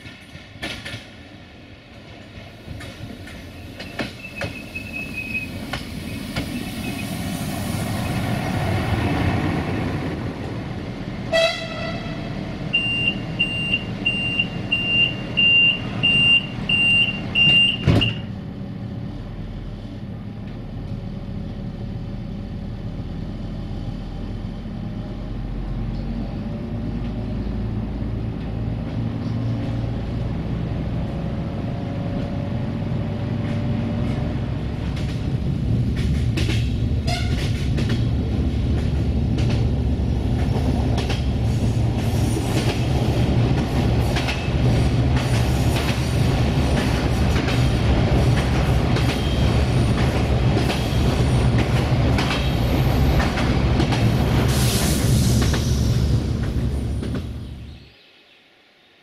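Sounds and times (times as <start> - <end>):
train rumble passing: 0.0 - 58.0
train horn toot: 11.3 - 12.4, 37.0 - 37.5.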